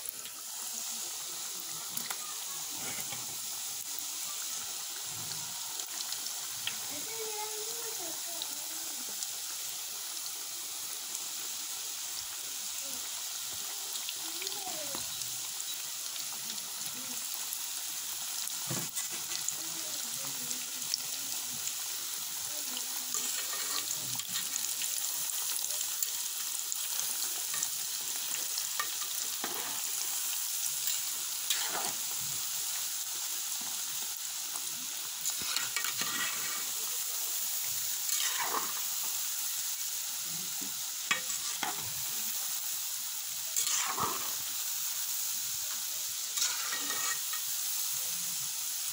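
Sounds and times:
dough sizzling in hot oil: 0.0 - 48.9
metal spatula scraping pan: 23.1 - 24.5, 31.5 - 32.0, 35.4 - 36.8, 38.1 - 38.8, 41.1 - 41.9, 43.6 - 44.4, 46.4 - 47.4.

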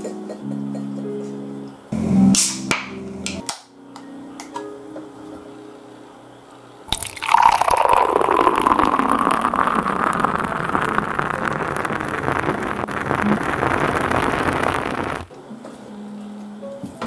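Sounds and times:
drink pouring into metal mug: 6.9 - 15.3.

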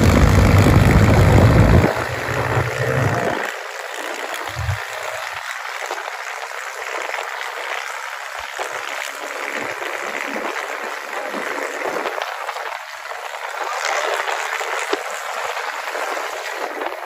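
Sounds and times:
air and road noise rushing: 0.0 - 17.0.

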